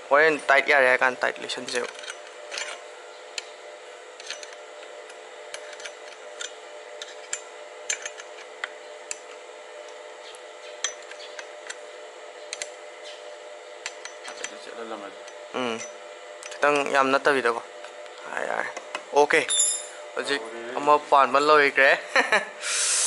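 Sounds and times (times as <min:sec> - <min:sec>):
steady hum: 0:00.0 - 0:23.0
spanner clicking on bolts: 0:01.4 - 0:02.8, 0:04.2 - 0:10.0, 0:10.7 - 0:11.8, 0:12.5 - 0:12.8, 0:13.8 - 0:14.6, 0:15.2 - 0:17.0.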